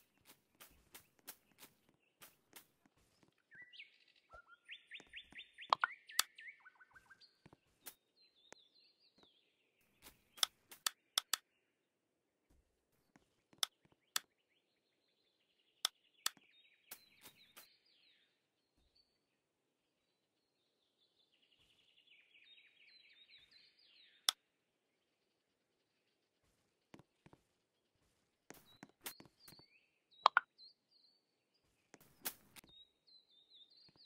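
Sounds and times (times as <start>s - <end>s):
small birds chirping: 0.0s - 34.0s
sharp clicks: 5.0s - 6.3s, 10.0s - 11.4s, 30.2s - 30.5s.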